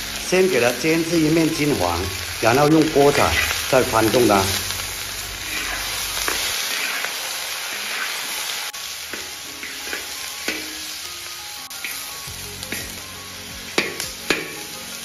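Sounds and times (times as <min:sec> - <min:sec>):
meat sizzling in hot oil: 0:00.0 - 0:15.0
metal spatula scraping a wok: 0:04.6 - 0:10.9.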